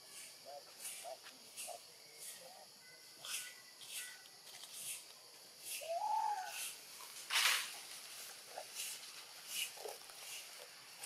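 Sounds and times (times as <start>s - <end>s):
baby monkey coo call: 5.8s - 6.7s.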